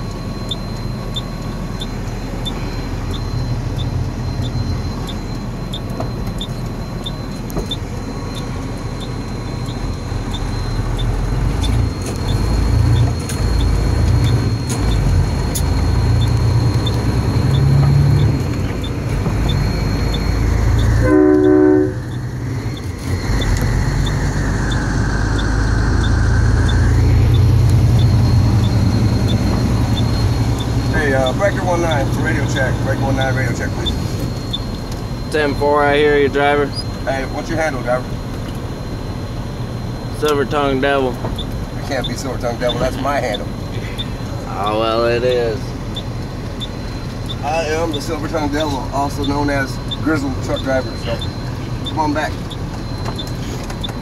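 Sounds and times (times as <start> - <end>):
diesel truck engine running: 0.0 - 54.0
truck horn blast: 21.0 - 22.2.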